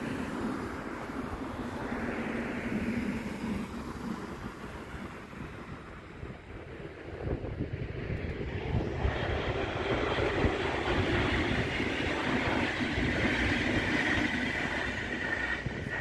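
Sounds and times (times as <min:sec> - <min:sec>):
train wheels rushing on rail: 0:00.0 - 0:16.0.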